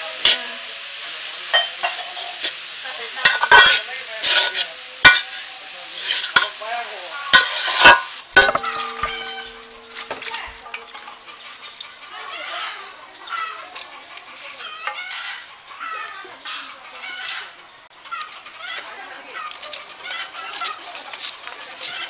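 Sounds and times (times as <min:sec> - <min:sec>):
leaves sizzling in hot oil: 0:00.0 - 0:16.0, 0:17.1 - 0:22.0
spatula scraping a pan: 0:01.8 - 0:06.6, 0:07.3 - 0:11.8
metallic clang: 0:07.4 - 0:11.3.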